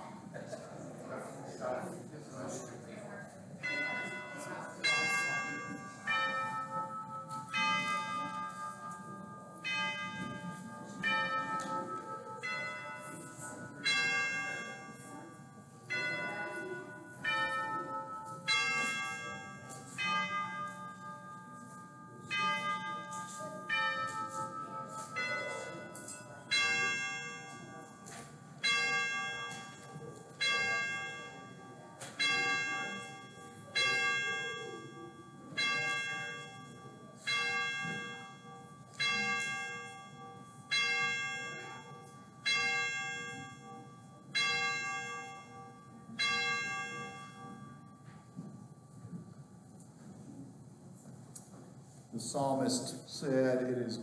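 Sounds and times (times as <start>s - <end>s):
church bells ringing: 3.5s - 49.7s.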